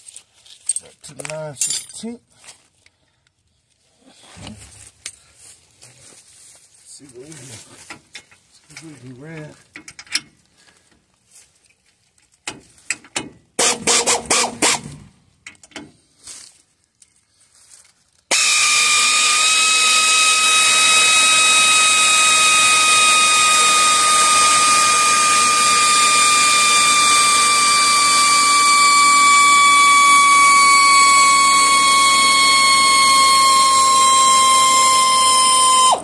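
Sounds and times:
machine motor whining: 18.3 - 36.0.

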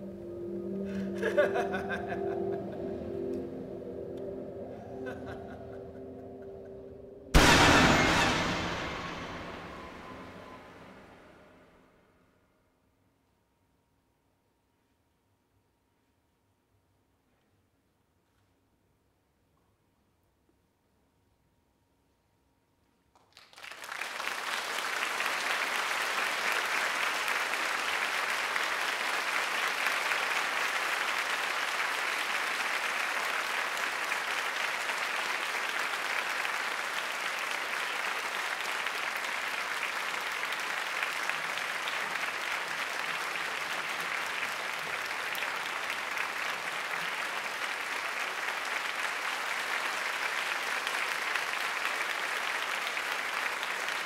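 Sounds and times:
audience applauding: 0.8 - 11.3, 23.2 - 54.0.

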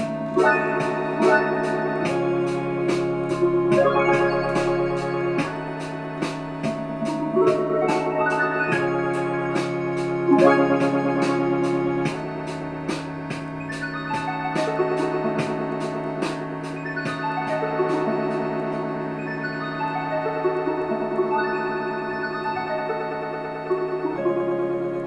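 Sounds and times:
strummed rising note runs: 0.0 - 22.8
held electronic chords: 0.0 - 25.0
steady ticking rhythm: 0.0 - 25.0.

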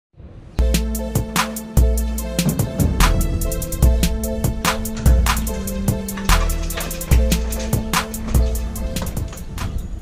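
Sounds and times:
held bass and keyboard notes: 0.6 - 10.0
deep kick drum: 0.7 - 5.5.

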